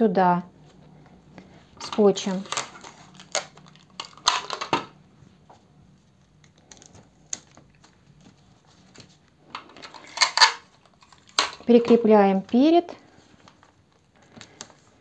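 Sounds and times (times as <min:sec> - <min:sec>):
adhesive tape pulled and torn: 0:02.4 - 0:03.8.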